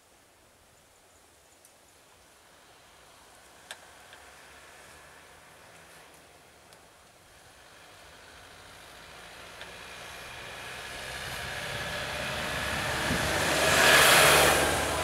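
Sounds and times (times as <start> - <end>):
bus driving past: 2.4 - 15.0.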